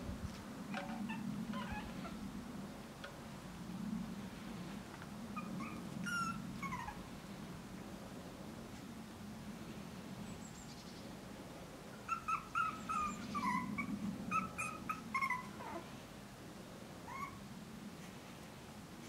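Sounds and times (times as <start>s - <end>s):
puppy whimpering and yipping: 0.8s - 2.2s, 5.4s - 7.0s, 12.0s - 15.9s, 17.1s - 17.4s.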